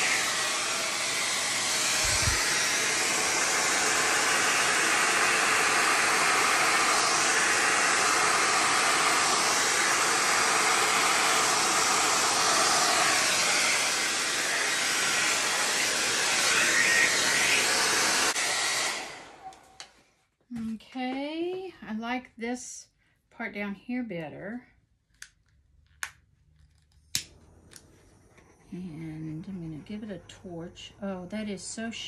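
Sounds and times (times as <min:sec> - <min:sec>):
hair dryer running: 0:00.0 - 0:20.0.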